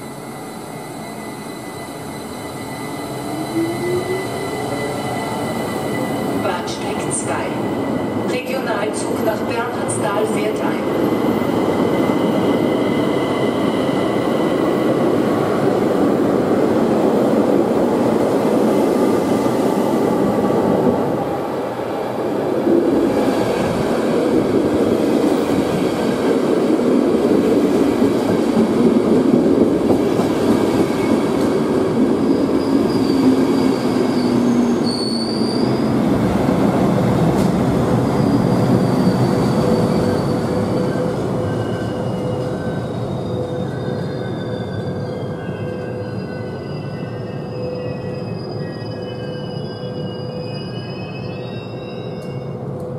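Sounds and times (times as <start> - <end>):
high wheel squeals: 0.1 - 8.4, 32.2 - 36.0, 38.1 - 52.6
train wheels rumbling on rails: 3.2 - 46.7.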